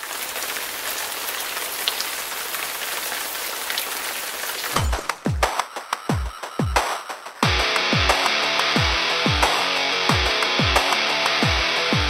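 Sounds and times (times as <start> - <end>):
heavy rain hissing: 0.0 - 4.8.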